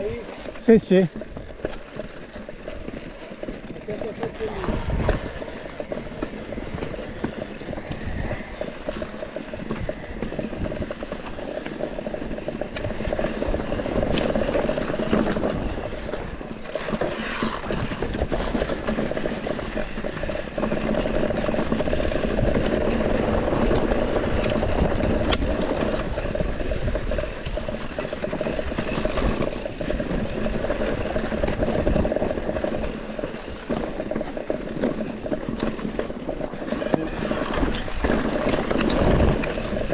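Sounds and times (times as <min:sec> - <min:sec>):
bike rattling clicks: 0:00.0 - 0:39.9
tyres rumbling over ground: 0:00.0 - 0:39.9
wind on microphone: 0:04.2 - 0:16.4.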